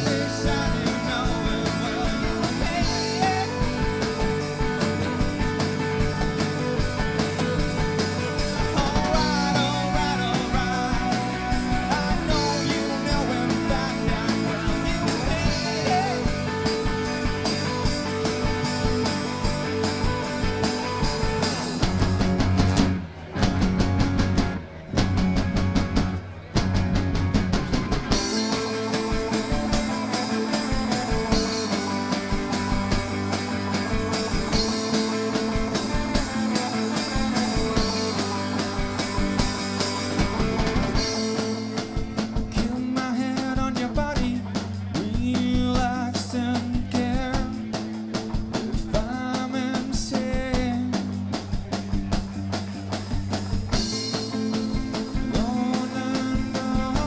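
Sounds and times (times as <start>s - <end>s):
man singing: 0.0s - 4.4s, 8.6s - 17.0s, 42.4s - 47.9s, 48.5s - 51.3s, 55.1s - 57.0s
live rock band playing: 0.0s - 57.0s.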